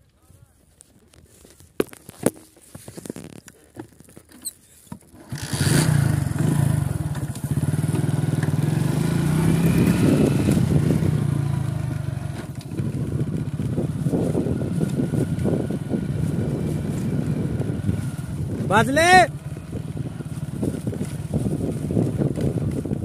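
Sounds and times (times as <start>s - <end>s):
motorcycle engine running: 5.1s - 23.0s.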